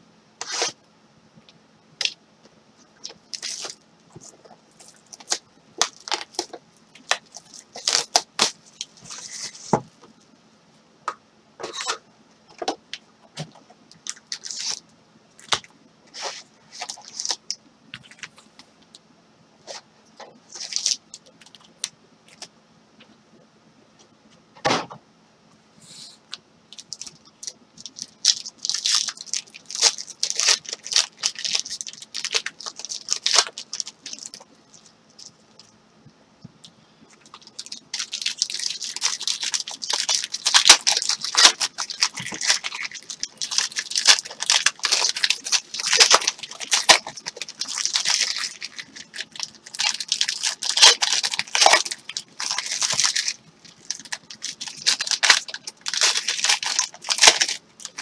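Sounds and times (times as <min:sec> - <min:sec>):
foil wrappers crinkling and tearing: 0:03.0 - 0:09.8, 0:14.0 - 0:14.8, 0:15.4 - 0:18.3, 0:20.5 - 0:22.5, 0:26.7 - 0:35.7, 0:37.2 - 0:58.0.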